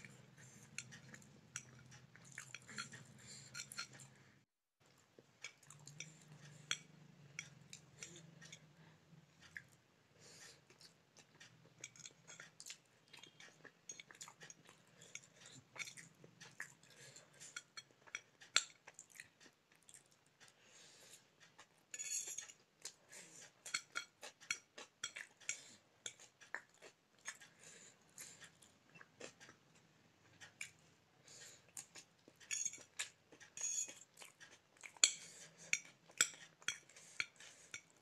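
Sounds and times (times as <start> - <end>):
close-up chewing: 0.0 - 4.2, 9.4 - 21.8, 22.4 - 38.0
fork scraping ceramic plate: 0.1 - 4.1, 22.0 - 22.6, 32.5 - 34.0.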